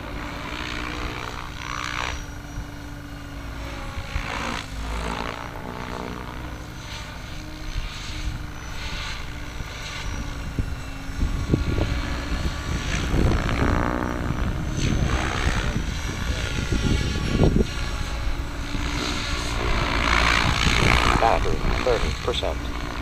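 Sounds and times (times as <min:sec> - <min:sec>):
rc helicopter rotor drone: 0:00.0 - 0:23.0.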